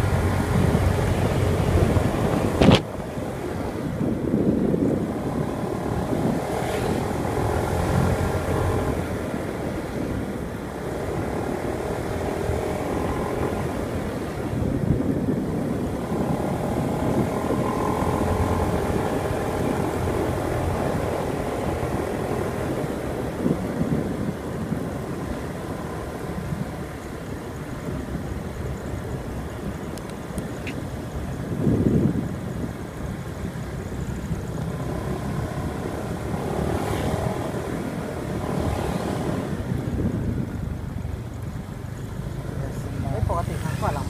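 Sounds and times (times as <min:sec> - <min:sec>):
wind rumbling on microphone: 0:00.0 - 0:44.0
motorbike engine running: 0:03.4 - 0:26.8.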